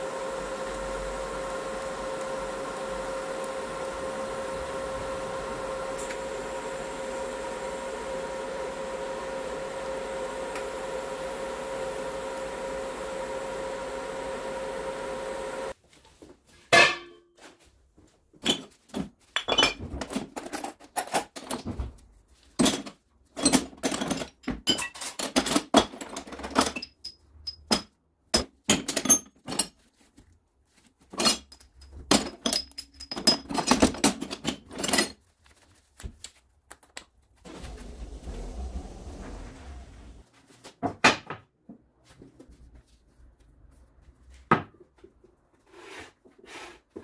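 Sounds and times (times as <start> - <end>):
motor hum: 0.0 - 15.7, 37.5 - 40.2.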